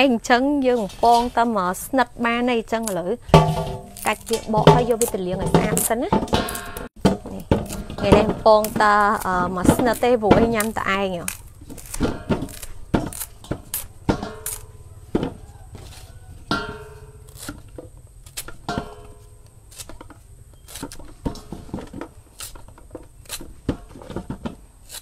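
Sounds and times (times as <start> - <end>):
knife peeling and trimming bananas: 0.6 - 25.0
metal bowl ringing: 3.2 - 6.9, 14.0 - 15.0, 16.5 - 17.3.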